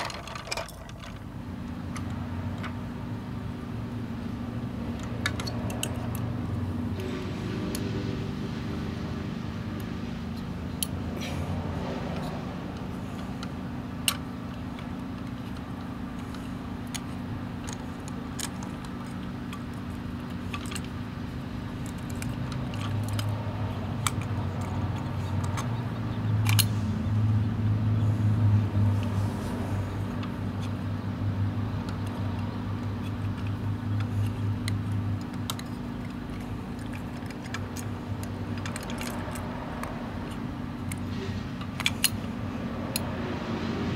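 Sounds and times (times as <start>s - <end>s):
small clicks of toy truck: 5.0s - 6.3s, 14.8s - 20.9s, 21.8s - 25.8s, 26.4s - 26.8s, 31.8s - 42.3s.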